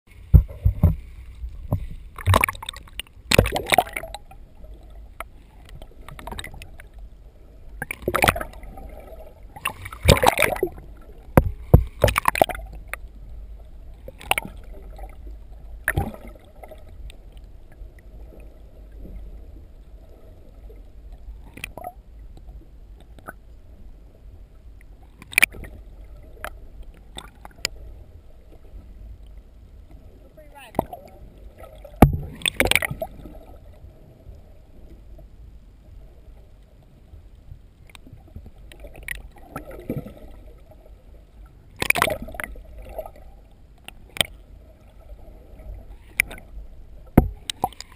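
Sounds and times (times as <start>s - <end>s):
underwater rumble of moving water: 0.1s - 47.9s
sharp knocks and clunks: 0.3s - 2.6s, 32.0s - 32.8s, 47.2s - 47.4s
camera splashing into water: 9.6s - 10.7s, 32.0s - 33.1s.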